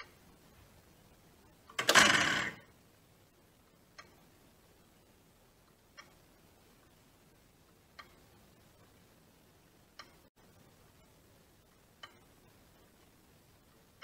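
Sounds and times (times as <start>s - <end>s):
clock ticking clicks: 0.0s - 0.2s, 3.7s - 4.4s, 5.6s - 9.2s, 9.8s - 13.2s.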